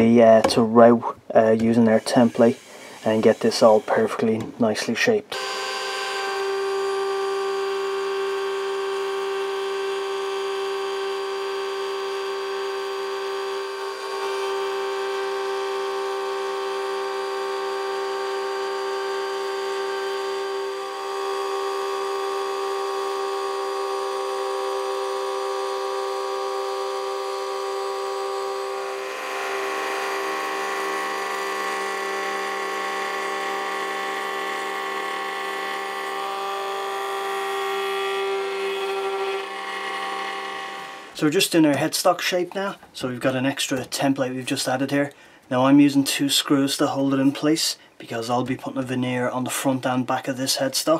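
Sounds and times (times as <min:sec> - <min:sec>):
router bit cutting wood: 0:00.0 - 0:42.0
router whine: 0:01.4 - 0:41.5.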